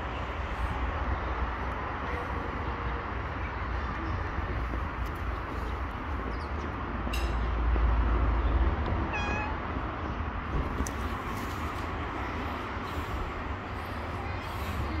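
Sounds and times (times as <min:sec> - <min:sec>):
cat meowing softly: 0:09.1 - 0:09.6.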